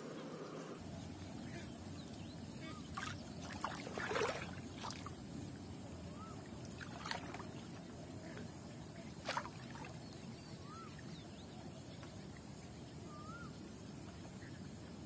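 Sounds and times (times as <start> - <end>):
steady low background noise: 0.0 - 15.0
water sloshing around legs: 2.0 - 5.3, 6.1 - 11.6
water splashes: 2.5 - 5.4, 6.1 - 13.4.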